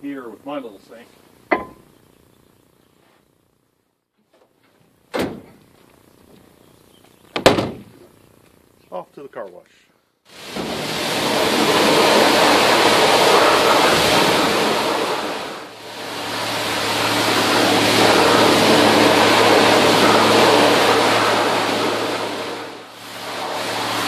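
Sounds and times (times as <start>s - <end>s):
steady low hum: 0.0s - 24.0s
pressure washer spraying water: 10.3s - 24.0s.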